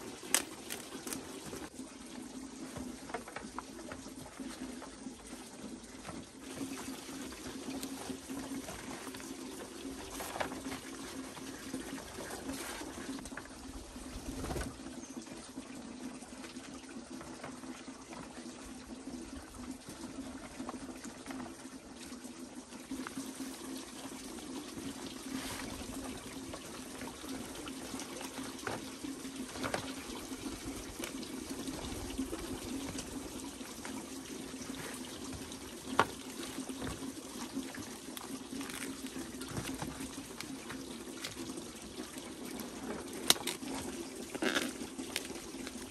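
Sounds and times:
leaves rustling and slapping: 0:00.0 - 0:01.7, 0:34.6 - 0:41.4
running water: 0:00.0 - 0:45.9.

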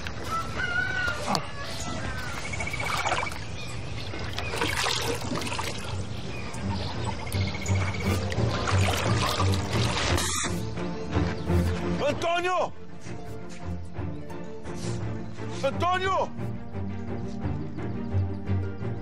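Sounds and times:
small birds chirping: 0:00.0 - 0:19.0
water splashing: 0:02.4 - 0:10.6.

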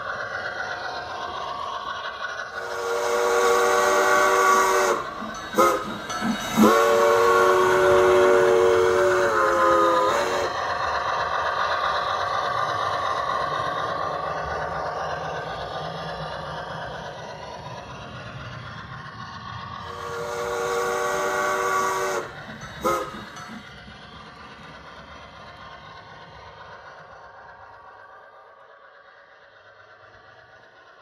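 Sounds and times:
model train running: 0:00.0 - 0:31.0
model train steam whistle: 0:02.6 - 0:10.7, 0:19.8 - 0:23.5.

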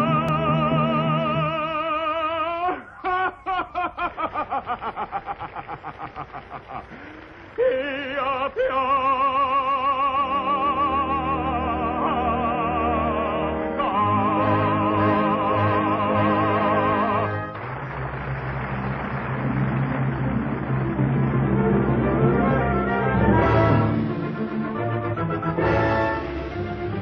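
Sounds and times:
operatic singing: 0:00.0 - 0:04.4, 0:07.5 - 0:17.7, 0:20.2 - 0:27.0.

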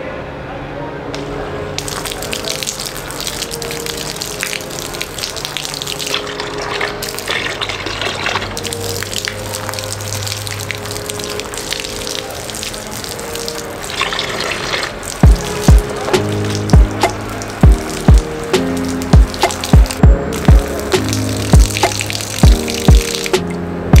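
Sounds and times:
water jet spattering on ground: 0:01.8 - 0:24.0
water splashing into bucket: 0:01.8 - 0:24.0.

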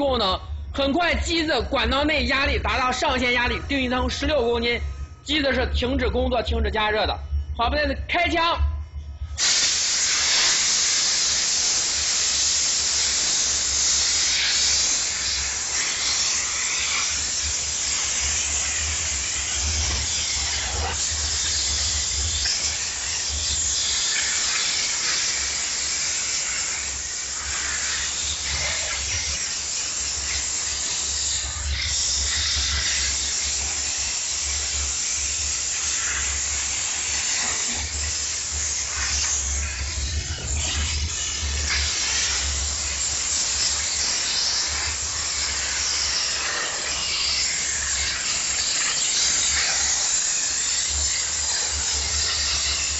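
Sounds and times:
steam jet hissing: 0:00.0 - 0:05.6, 0:09.3 - 0:52.9
low hum: 0:00.3 - 0:09.4.

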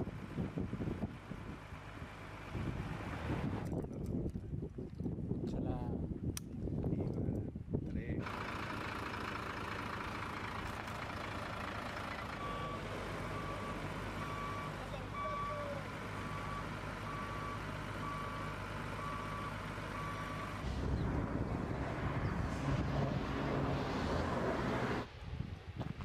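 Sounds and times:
low engine rumble: 0:06.7 - 0:26.0
reversing alarm beeping: 0:12.3 - 0:20.6.

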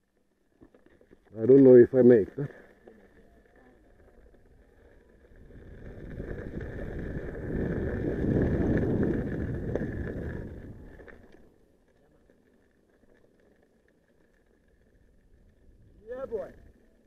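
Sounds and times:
tyre rolling on gravel: 0:00.6 - 0:11.6
wind on microphone: 0:05.2 - 0:11.1.

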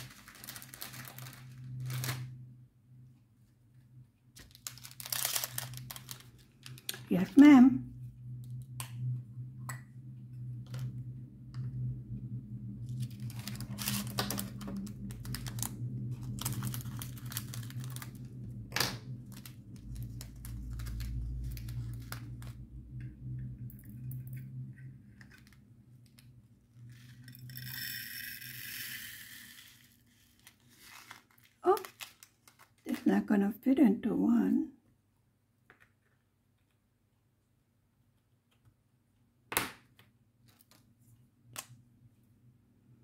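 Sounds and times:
plastic bags clicking and rattling: 0:00.0 - 0:02.3, 0:04.4 - 0:07.1, 0:13.0 - 0:22.6, 0:29.9 - 0:33.1
plastic crinkling: 0:00.0 - 0:02.4, 0:04.4 - 0:07.1, 0:12.9 - 0:22.8, 0:29.9 - 0:33.1
steady low hum: 0:05.6 - 0:30.6.

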